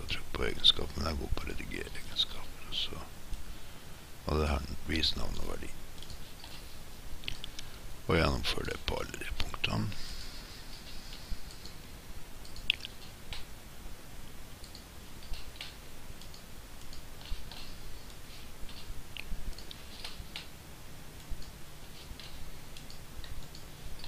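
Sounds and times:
computer mouse clicking: 10.8 - 11.8, 12.4 - 13.5, 14.6 - 20.5.

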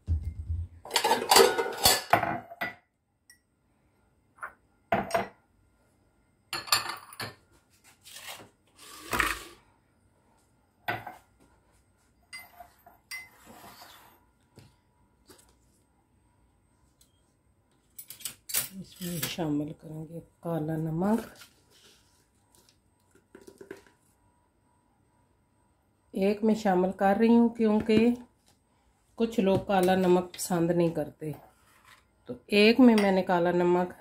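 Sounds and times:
glasses clinking on stone countertop: 0.9 - 3.4, 6.5 - 7.4, 12.3 - 13.5.

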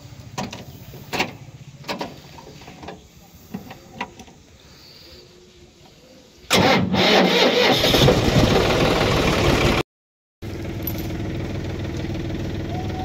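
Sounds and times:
tractor diesel engine running: 6.5 - 9.8, 10.4 - 13.0.

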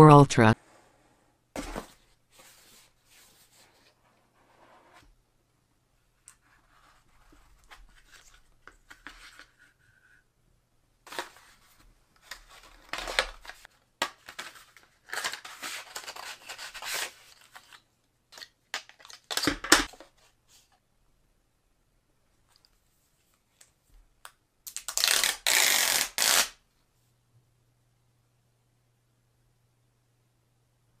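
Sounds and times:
cardboard packaging rustling: 11.1 - 17.8.

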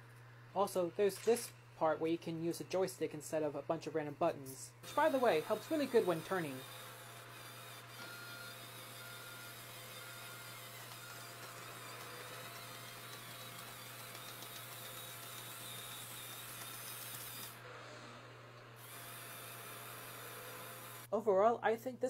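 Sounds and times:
small electric motors whirring: 4.8 - 21.1.

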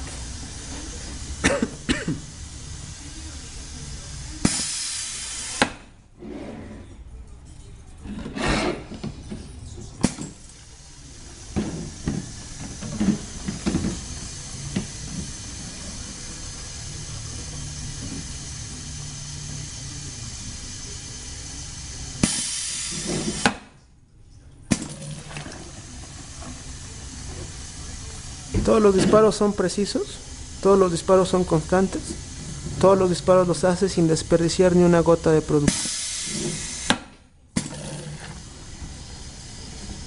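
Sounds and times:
compressed air hiss: 0.0 - 5.9, 10.0 - 23.6, 25.7 - 37.1, 38.1 - 40.0
machine running: 9.6 - 23.6.

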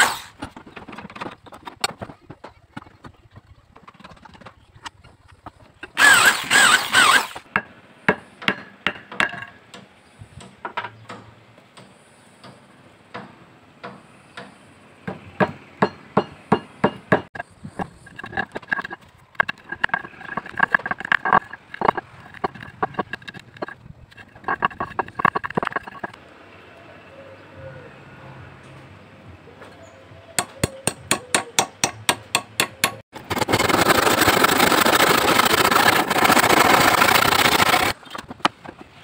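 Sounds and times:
loud harsh scraping: 5.9 - 7.4, 33.1 - 38.2
knife shaving wood: 33.2 - 38.0.

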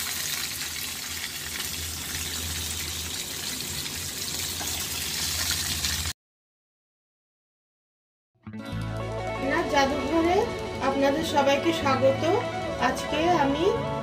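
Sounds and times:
fish fritters deep-frying: 0.0 - 6.2.

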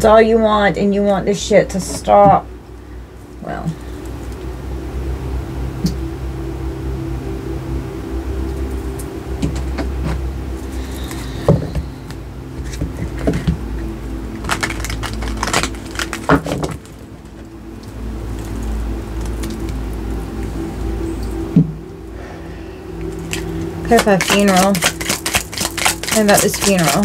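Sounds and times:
low hum: 0.0 - 27.0
cards being shuffled: 9.4 - 11.9, 14.4 - 17.1, 23.0 - 27.0.

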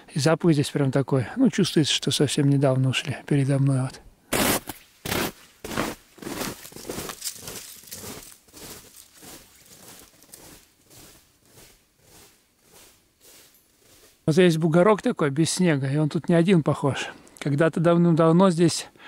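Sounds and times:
footsteps crunching on snow crust: 4.3 - 14.6.

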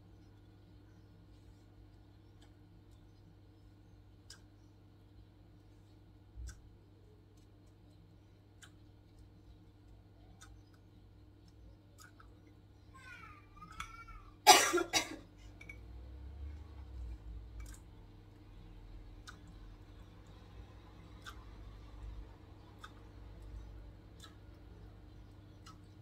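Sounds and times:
person coughing: 14.4 - 15.3.

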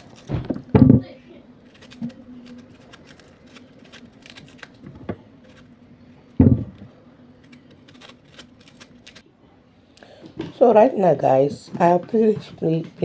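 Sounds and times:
knife scraping plantain skin: 1.7 - 4.7, 7.4 - 9.2
heavy thump: 6.4 - 6.8.

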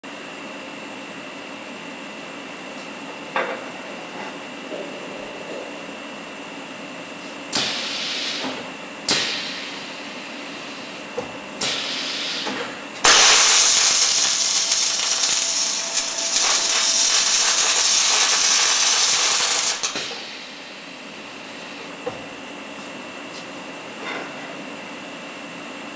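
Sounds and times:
welding arc hiss and crackle: 7.3 - 11.0, 11.6 - 20.9
machine hissing bursts: 7.5 - 9.9, 11.6 - 20.7.

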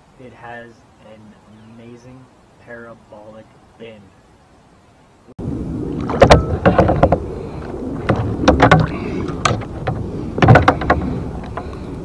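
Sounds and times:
low background noise: 0.0 - 12.0
knocks against kayak hull: 6.1 - 7.2, 8.0 - 11.7.

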